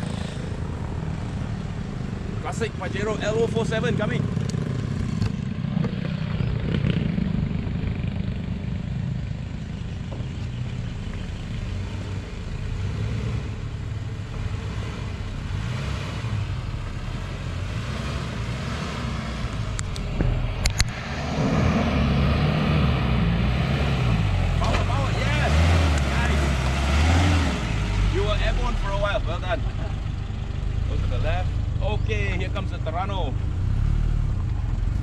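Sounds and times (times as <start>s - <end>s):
vehicle engine running: 0.0s - 35.0s.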